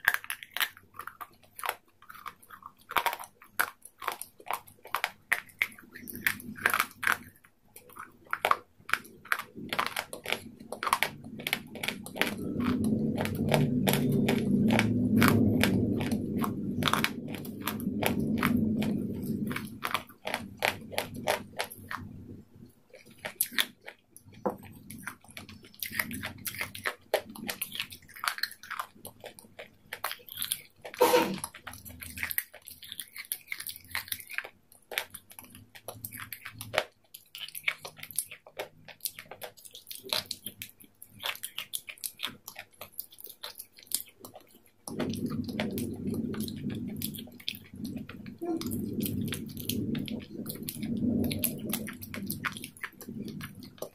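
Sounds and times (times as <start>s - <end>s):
chewing crisp salad: 0.0s - 53.9s
low steady rumble: 9.3s - 23.2s, 44.8s - 53.9s
mouth sound: 31.0s - 31.5s.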